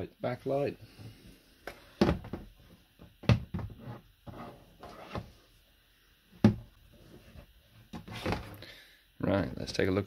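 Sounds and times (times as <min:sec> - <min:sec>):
knocks and thumps in plastic tub: 0:02.0 - 0:03.8, 0:06.4 - 0:06.7.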